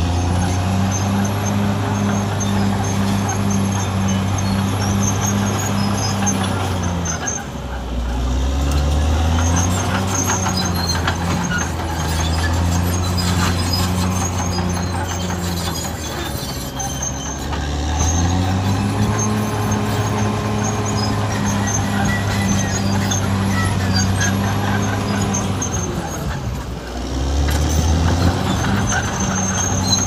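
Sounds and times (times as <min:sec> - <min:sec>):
bulldozer diesel engine working: 0:00.0 - 0:30.0.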